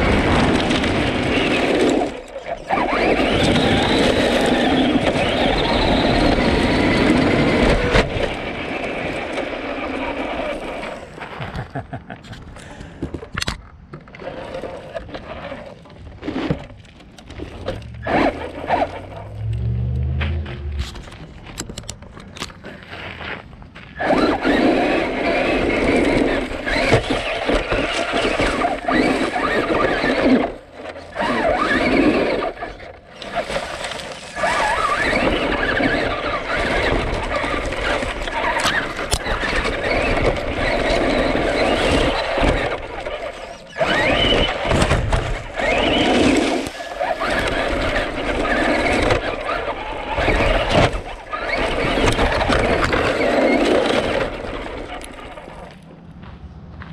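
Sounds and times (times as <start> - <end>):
electric motor and gear whine: 0.0 - 11.3, 14.2 - 22.8
tyres crunching on gravel: 0.0 - 56.9.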